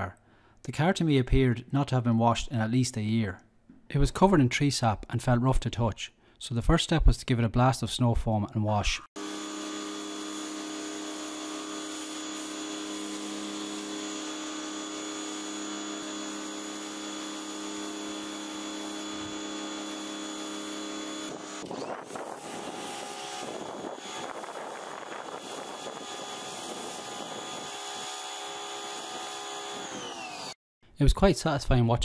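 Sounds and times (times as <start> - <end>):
pressure washer motor and pump: 9.2 - 30.6.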